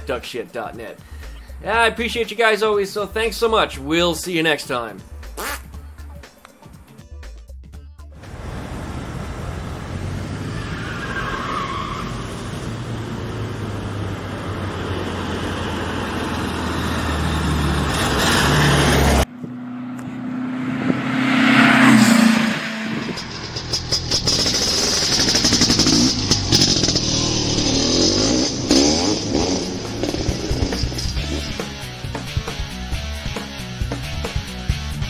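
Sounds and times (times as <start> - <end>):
engine roaring: 8.2 - 35.0
car engine running: 12.6 - 33.0.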